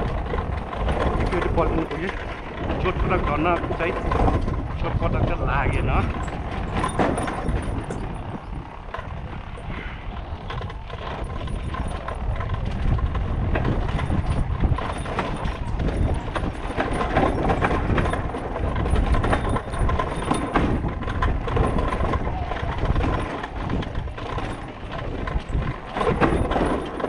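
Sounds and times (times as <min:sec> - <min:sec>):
knocks and rattles over bumps: 0:00.0 - 0:27.0
motorcycle on dirt track: 0:00.0 - 0:27.0.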